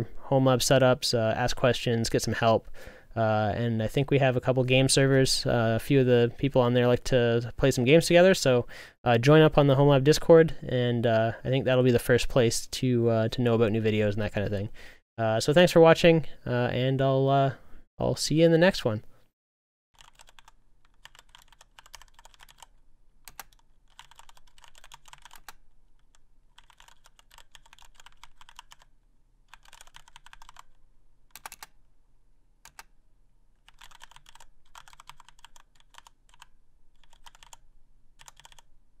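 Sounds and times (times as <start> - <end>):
faint keyboard typing: 20.0 - 28.9, 29.5 - 31.8, 32.6 - 32.9, 33.6 - 37.6, 38.2 - 38.7.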